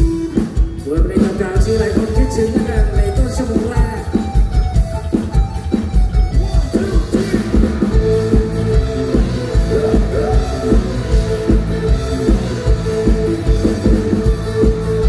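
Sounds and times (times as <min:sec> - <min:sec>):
live rock band: 0:00.0 - 0:15.0.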